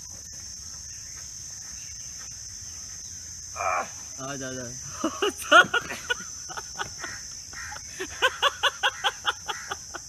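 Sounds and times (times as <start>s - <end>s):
crickets chirring: 0.0s - 10.0s
person laughing: 4.9s - 10.0s.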